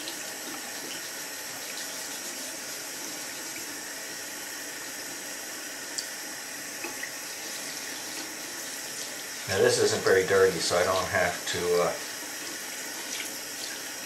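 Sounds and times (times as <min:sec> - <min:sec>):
tap water splashing: 0:06.8 - 0:07.2, 0:12.4 - 0:14.0.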